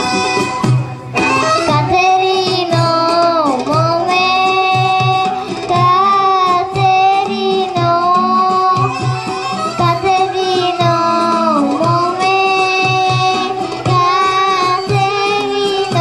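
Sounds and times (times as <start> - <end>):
instrumental accompaniment with beat: 0.0 - 16.0
girl singing into microphone: 1.5 - 16.0.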